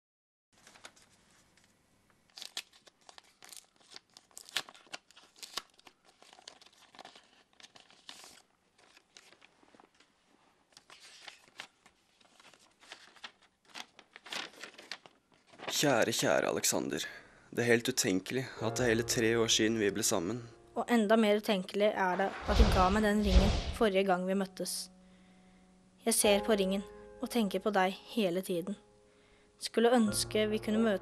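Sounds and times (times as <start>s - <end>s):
paper rustling: 0.6s - 16.2s, 22.0s - 23.9s
envelope tearing: 2.3s - 15.9s.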